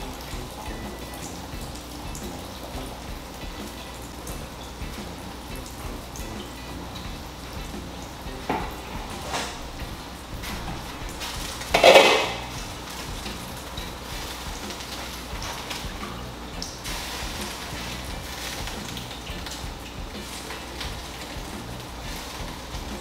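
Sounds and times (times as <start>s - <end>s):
metal pots and utensils clinking: 0.0s - 23.0s
pot lid clanging: 10.4s - 12.9s.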